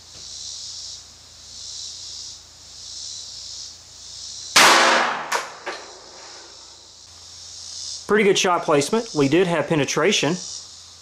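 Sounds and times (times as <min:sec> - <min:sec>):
pistol shot: 0:04.6 - 0:06.1.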